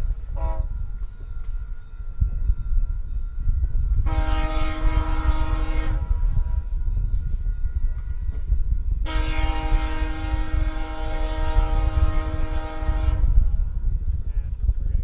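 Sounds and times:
low rumble: 0:00.0 - 0:15.0
distant train air horn blast: 0:00.3 - 0:00.9, 0:04.0 - 0:06.6, 0:09.0 - 0:13.5.

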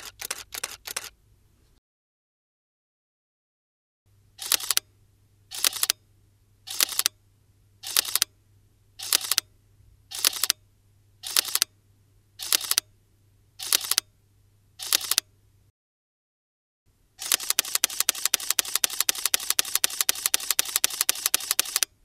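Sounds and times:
camera shutter double clicks: 0:00.0 - 0:01.1, 0:04.4 - 0:04.8, 0:05.5 - 0:06.0, 0:06.7 - 0:07.2, 0:07.8 - 0:08.3, 0:09.0 - 0:09.5, 0:10.1 - 0:10.6, 0:11.2 - 0:11.7, 0:12.4 - 0:12.9, 0:13.6 - 0:14.1, 0:14.8 - 0:15.3, 0:17.2 - 0:21.9.

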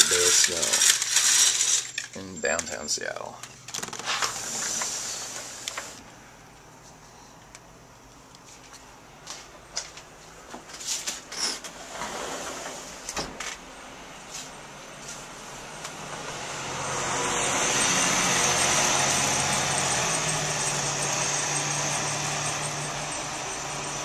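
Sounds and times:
car engine hum: 0:15.6 - 0:24.0
tyres on snowy street: 0:15.9 - 0:24.0.

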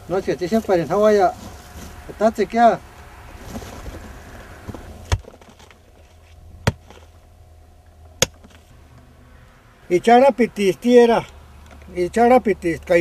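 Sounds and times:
digging tool striking hard earth: 0:04.7 - 0:06.0, 0:06.6 - 0:07.1, 0:08.2 - 0:08.6.

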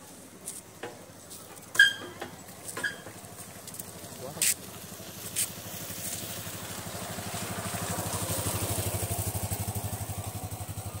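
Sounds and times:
small engine running: 0:03.3 - 0:11.0.

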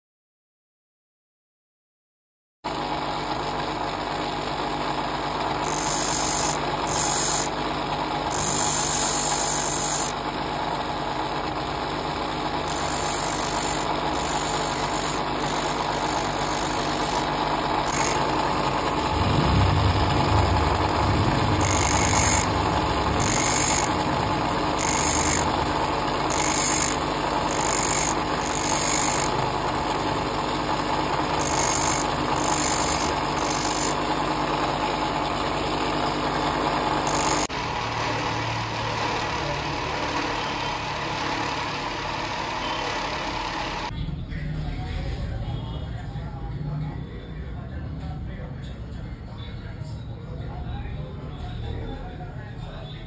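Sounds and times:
grinder motor running: 0:02.7 - 0:43.9
drill bit grinding hiss: 0:05.4 - 0:10.4, 0:11.4 - 0:19.1, 0:20.7 - 0:34.6, 0:36.3 - 0:37.5.

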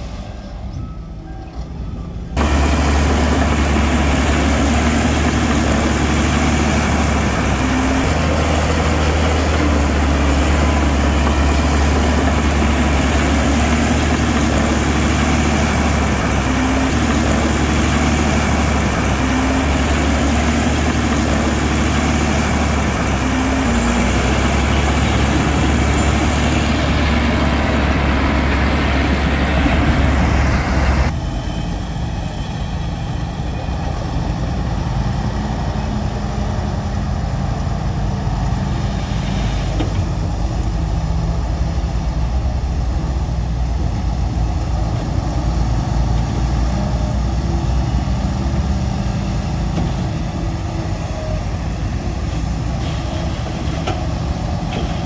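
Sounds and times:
heavy diesel engine rumbling: 0:00.0 - 0:55.0.

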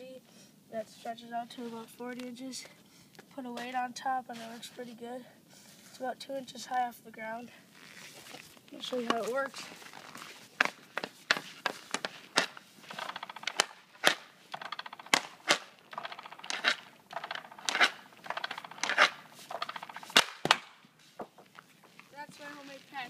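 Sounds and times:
puck and stick scraping ice: 0:03.6 - 0:04.9, 0:08.0 - 0:23.0
puck cracking off hockey stick: 0:08.2 - 0:21.6.

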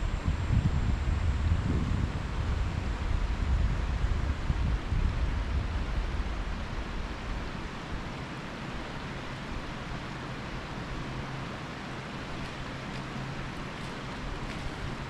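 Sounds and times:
wind buffeting microphone: 0:00.0 - 0:08.1
steady rushing hiss: 0:00.0 - 0:15.0.

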